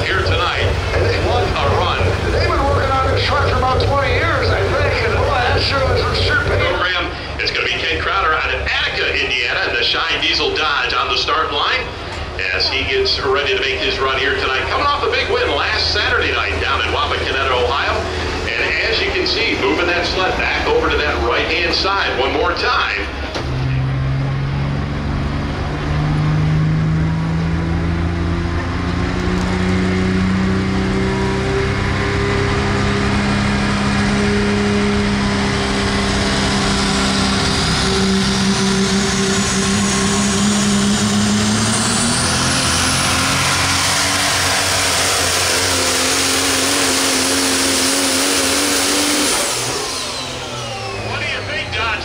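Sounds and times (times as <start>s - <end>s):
diesel truck engine at full throttle: 0.0s - 52.0s.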